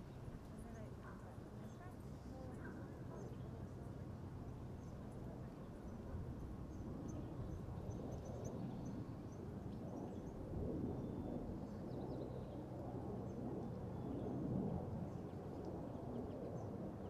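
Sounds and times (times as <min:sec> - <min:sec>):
faint low hum: 0:00.0 - 0:12.6
wind: 0:00.0 - 0:17.0.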